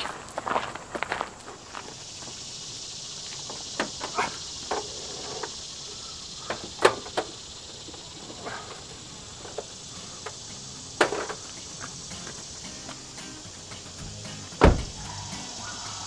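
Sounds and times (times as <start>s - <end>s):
insects chirring: 0.0s - 16.0s
knocks and clunks: 11.0s - 13.0s, 14.0s - 15.0s.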